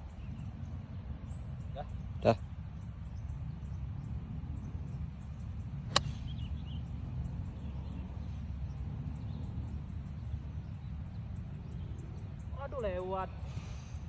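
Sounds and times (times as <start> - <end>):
golf club striking ball: 5.8 - 6.5.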